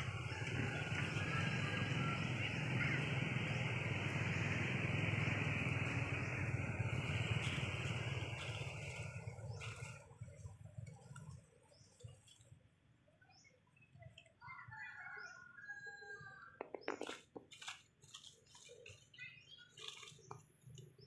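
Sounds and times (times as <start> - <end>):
dry leaves crackling: 0.0 - 12.6, 16.9 - 21.0
motor vehicle passing: 0.0 - 12.6.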